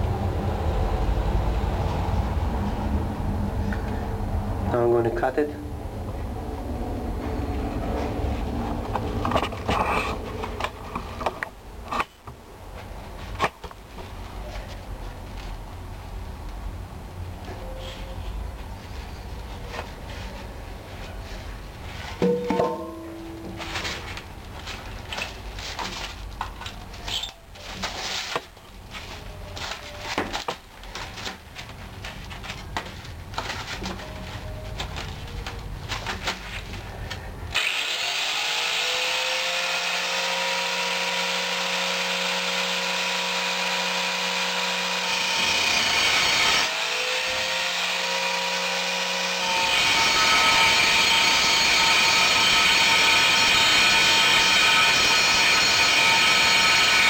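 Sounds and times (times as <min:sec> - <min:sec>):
angle grinder whining: 0:37.5 - 0:57.0
grinder disc cutting steel: 0:37.6 - 0:57.0.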